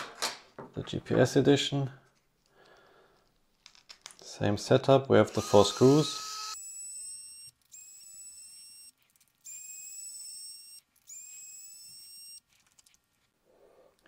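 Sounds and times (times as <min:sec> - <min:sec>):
electric screwdriver motor whining: 0:05.3 - 0:12.4.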